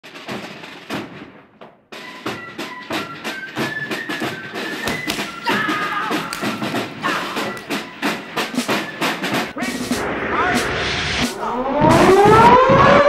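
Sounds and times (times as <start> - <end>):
fast clacking beat music: 2.0 - 10.0.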